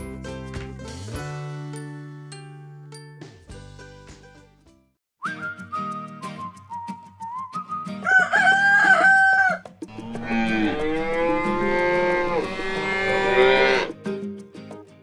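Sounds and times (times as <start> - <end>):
background music: 0.0 - 15.0
rooster crowing: 8.0 - 13.9
cows mooing: 9.9 - 14.0.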